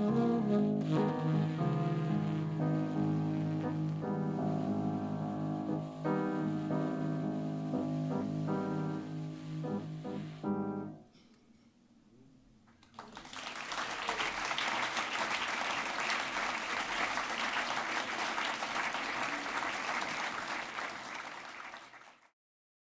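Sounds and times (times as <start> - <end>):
audience applauding: 12.8 - 22.3.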